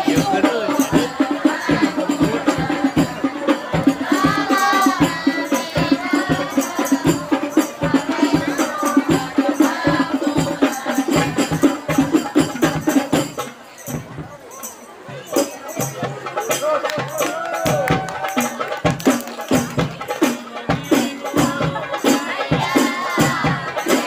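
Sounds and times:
person singing: 0.0 - 12.6
frame drums with jingles: 0.0 - 24.0.

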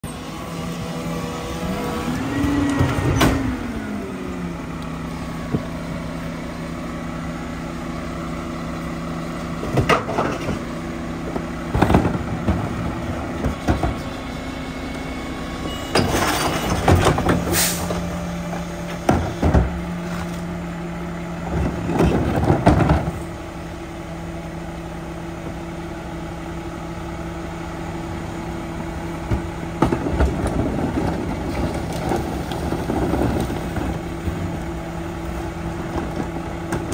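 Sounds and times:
garbage truck diesel engine idling: 0.0 - 22.4
short air hiss: 17.5 - 17.9.

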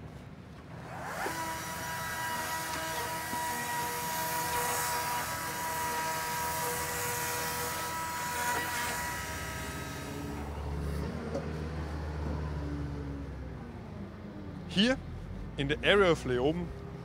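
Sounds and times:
motor whining at high speed: 0.7 - 11.1.

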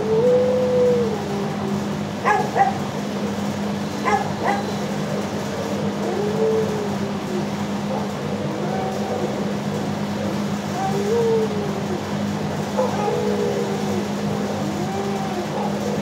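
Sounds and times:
dog whining howl: 0.0 - 2.8, 4.0 - 5.0, 5.8 - 9.6, 10.7 - 16.0
dogs barking: 1.1 - 3.0, 3.9 - 9.5, 10.7 - 16.0.

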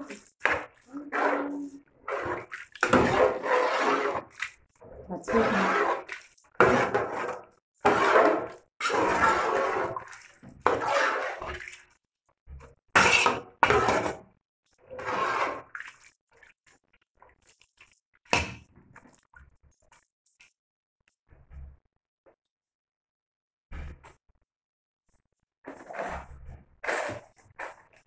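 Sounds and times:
metal ladle stirring in pot: 0.0 - 11.9.

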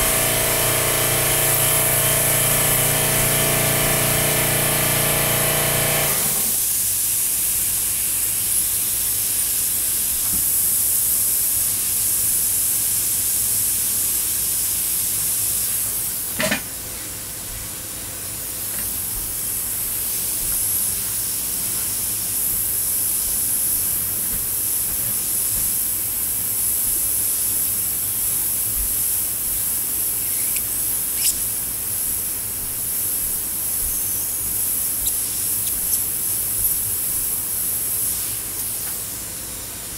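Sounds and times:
airbrush hissing: 19.4 - 39.0.

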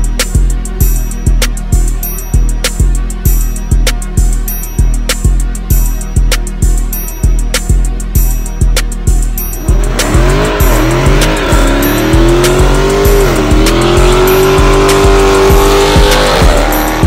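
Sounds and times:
music with steady beat: 0.0 - 17.0
car engine revving: 9.0 - 17.0.

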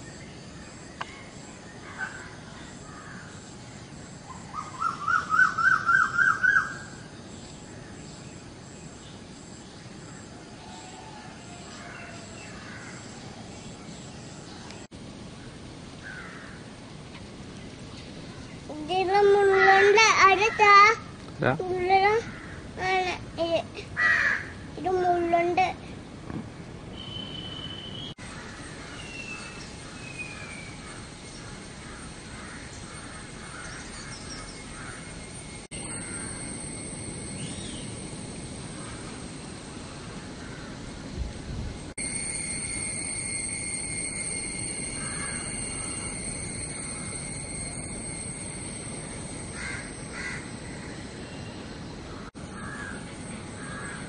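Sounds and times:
steady high hiss: 0.0 - 54.0
crow cawing: 12.6 - 13.0, 16.0 - 16.6, 22.2 - 22.7, 24.0 - 24.6, 31.9 - 35.1, 40.4 - 40.8, 45.0 - 46.1, 49.6 - 51.0, 52.1 - 53.0, 53.6 - 54.0
high bird whistles: 26.9 - 28.2
birds chirping: 26.9 - 41.1, 44.5 - 54.0.

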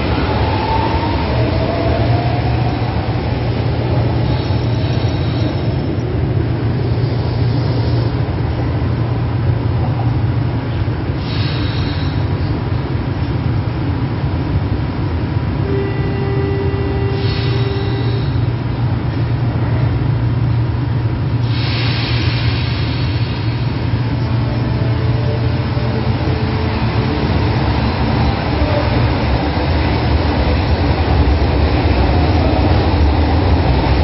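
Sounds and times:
train humming: 0.0 - 34.0
air hiss: 11.2 - 12.4, 17.2 - 18.5, 21.4 - 24.0
train motor whine: 15.6 - 18.7.

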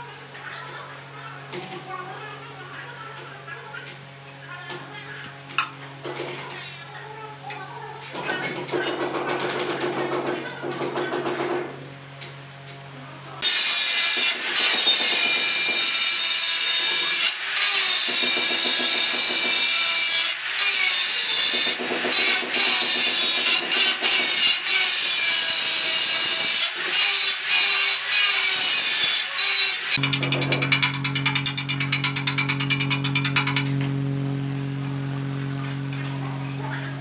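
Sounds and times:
angle grinder cutting tile: 13.4 - 34.1.

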